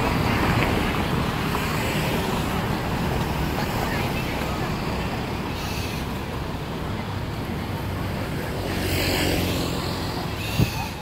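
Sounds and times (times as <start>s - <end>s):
road noise rumble: 0.0s - 11.0s.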